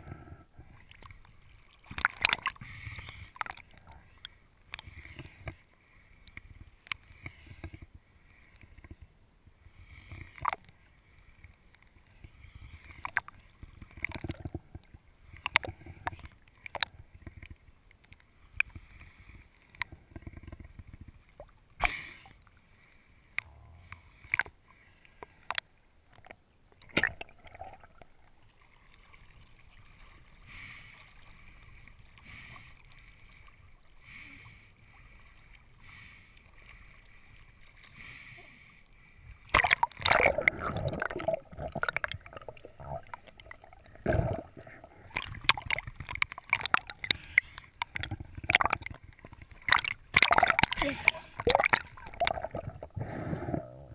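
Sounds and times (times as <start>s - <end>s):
underwater rush of water: 0.0s - 4.1s, 39.4s - 53.9s.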